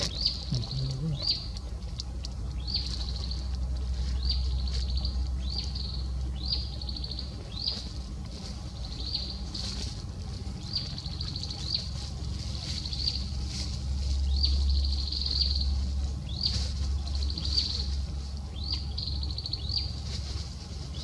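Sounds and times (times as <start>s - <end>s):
low background hum: 0.0s - 21.0s.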